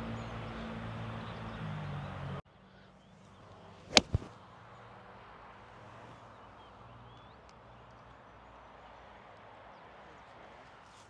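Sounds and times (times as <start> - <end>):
golf club striking ball: 3.9 - 4.3.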